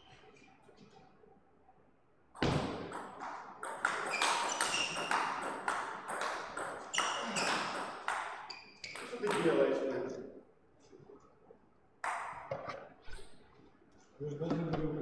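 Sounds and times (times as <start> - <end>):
table tennis ball pinging: 2.4 - 9.6.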